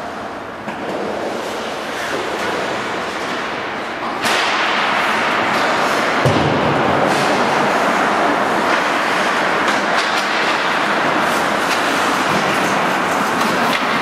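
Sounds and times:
hockey sticks clacking: 0.0 - 14.0
skate blades scraping ice: 7.0 - 14.0.

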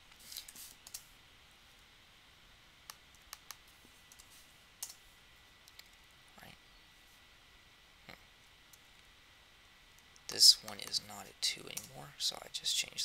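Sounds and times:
computer mouse clicks: 0.4 - 1.1, 2.9 - 5.0, 5.6 - 6.0.

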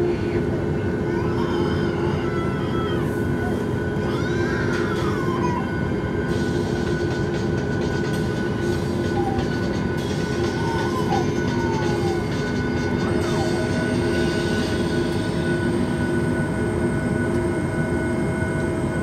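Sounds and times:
airplane cabin rumble: 0.0 - 19.0
faint high wavering sounds: 0.0 - 19.0.

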